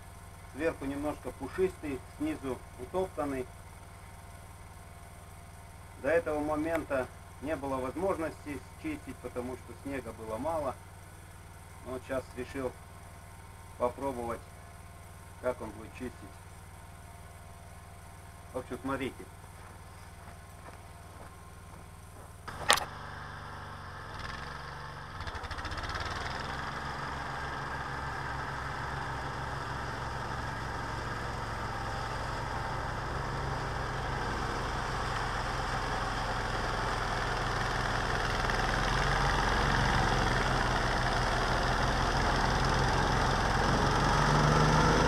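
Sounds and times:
snowblower engine running: 0:00.0 - 0:45.0.

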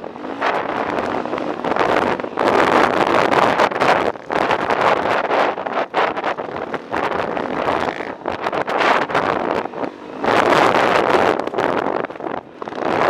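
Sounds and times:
dirt bike engine running: 0:00.0 - 0:13.0
wind buffeting microphone: 0:00.0 - 0:13.0.

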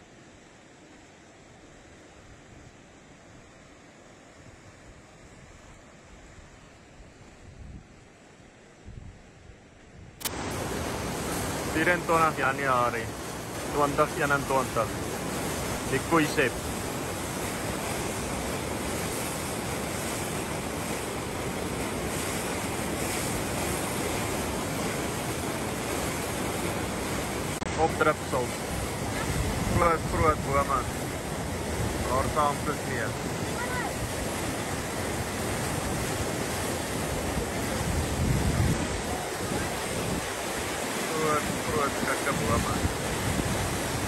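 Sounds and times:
floodwater rushing: 0:10.2 - 0:44.0.

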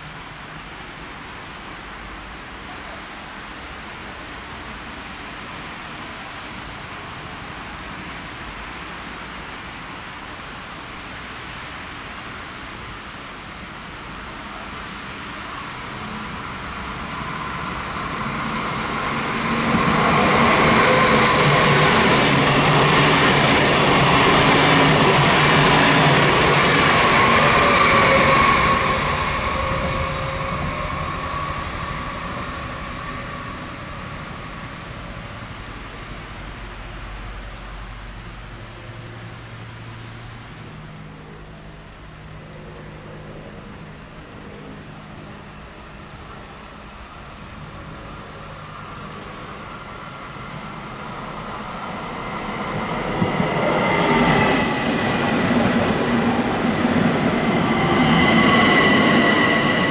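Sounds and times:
electric train rumbling: 0:13.5 - 0:39.0, 0:45.5 - 0:59.9
train wheel squeal: 0:15.7 - 0:35.1, 0:48.7 - 0:59.9
brief hiss: 0:54.6 - 0:56.1.

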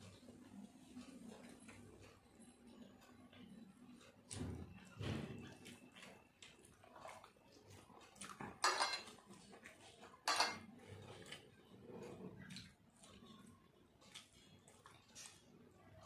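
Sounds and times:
clatters against dishes: 0:08.4 - 0:09.2, 0:10.2 - 0:10.8.

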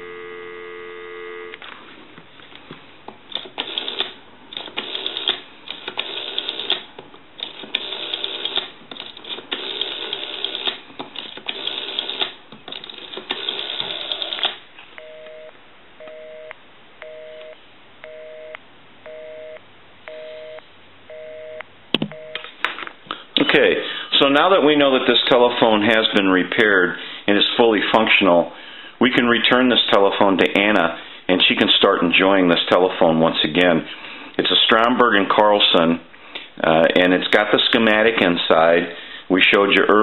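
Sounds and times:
two-tone busy signal beeps: 0:00.0 - 0:01.6, 0:15.0 - 0:22.4.

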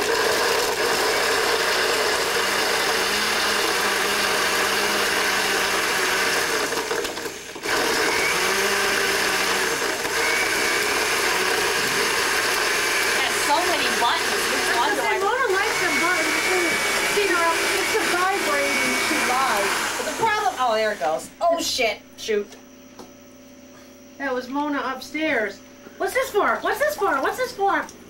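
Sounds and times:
countertop blender running: 0:00.0 - 0:21.4.

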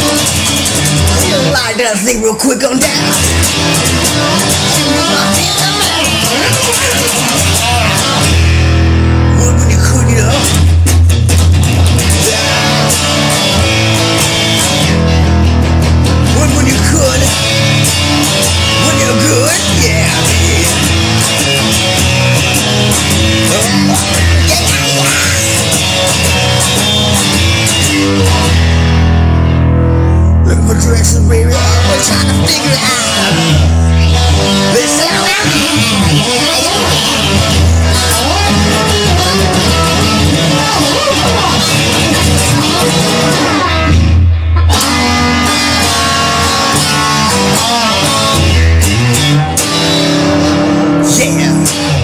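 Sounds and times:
electric guitar: 0:00.0 - 0:52.0
steady drum beat: 0:02.9 - 0:28.9
heavy low bass: 0:03.0 - 0:52.0.

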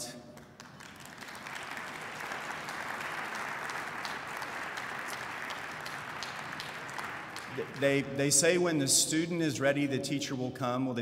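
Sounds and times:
audience applauding: 0:00.4 - 0:08.1.

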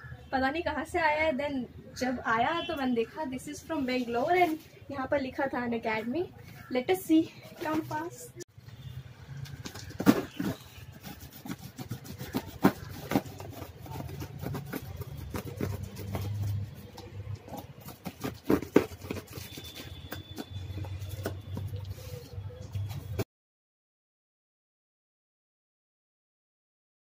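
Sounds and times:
knife scraping packing tape: 0:09.7 - 0:21.2.

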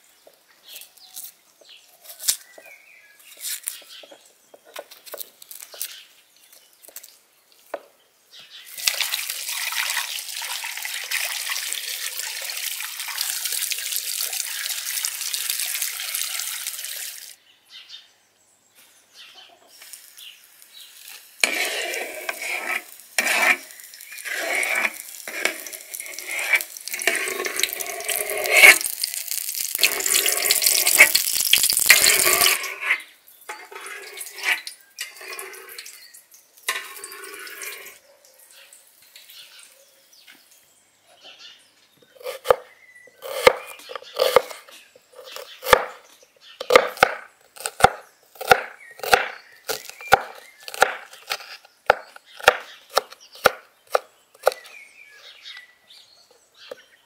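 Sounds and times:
hot oil sizzling in a pan: 0:08.8 - 0:17.4, 0:19.8 - 0:32.6
knife chopping onion on wooden board: 0:43.2 - 0:44.5, 0:45.2 - 0:46.0, 0:46.6 - 0:54.7.

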